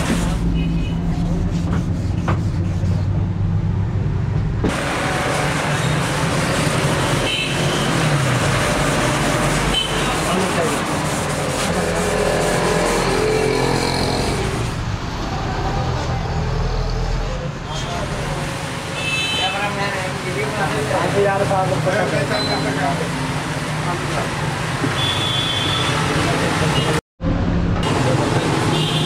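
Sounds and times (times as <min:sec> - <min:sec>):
hiss of traffic: 0:04.7 - 0:17.0.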